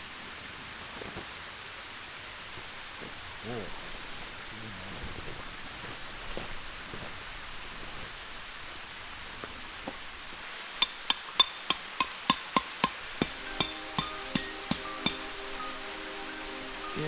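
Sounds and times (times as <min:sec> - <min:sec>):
rain-like outdoor hiss: 0:00.0 - 0:17.0
canvas rustling on gravel: 0:02.4 - 0:10.5
music with wood-block percussion: 0:10.8 - 0:16.0.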